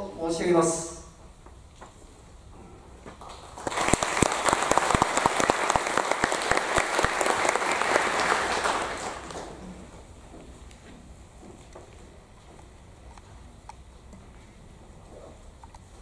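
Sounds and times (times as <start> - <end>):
audience applauding: 3.2 - 9.8.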